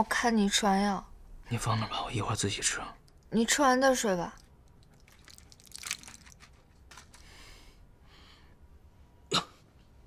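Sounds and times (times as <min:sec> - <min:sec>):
faint breaths: 0:07.0 - 0:08.9.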